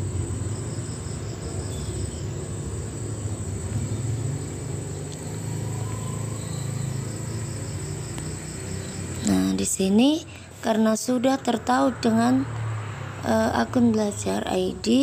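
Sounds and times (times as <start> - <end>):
faint high chirp: 1.1 - 2.4, 5.2 - 7.1.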